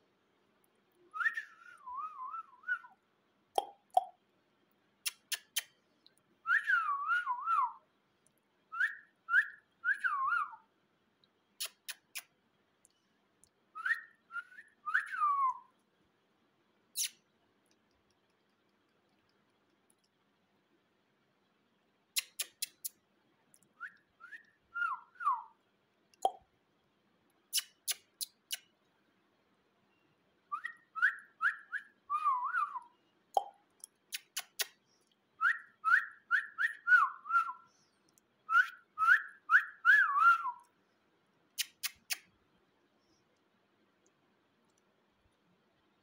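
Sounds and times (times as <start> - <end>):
whistling: 1.1 - 3.0, 6.4 - 7.8, 8.7 - 10.7, 13.8 - 15.8, 23.8 - 25.6, 29.9 - 33.5, 35.4 - 40.7
sharp clicks: 5.0 - 5.8, 22.2 - 23.7, 33.4 - 34.8, 41.6 - 42.3.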